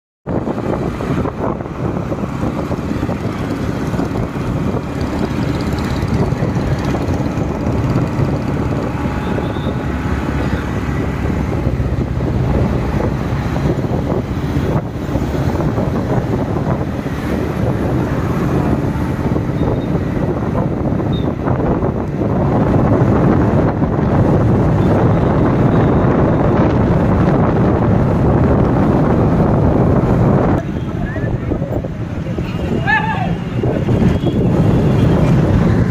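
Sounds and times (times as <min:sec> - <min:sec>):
road traffic: 0:00.2 - 0:35.9
wind rushing over microphone: 0:00.2 - 0:35.9
motorcycle engine: 0:01.4 - 0:20.8.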